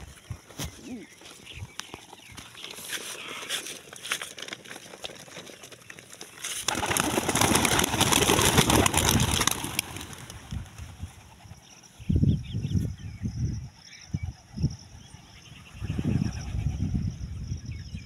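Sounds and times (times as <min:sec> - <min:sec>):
pigeons wingbeats flurry: 0:02.9 - 0:11.6.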